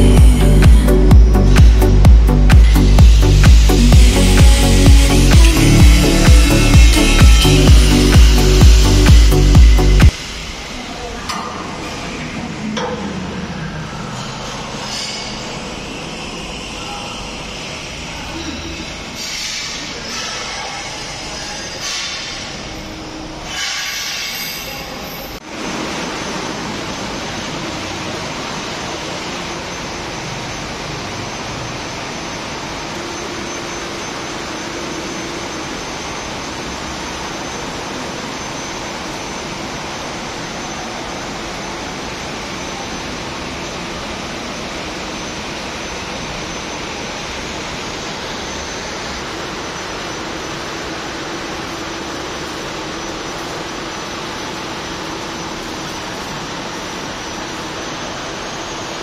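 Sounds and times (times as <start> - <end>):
welding hiss: 0.4 - 11.1, 17.6 - 59.0.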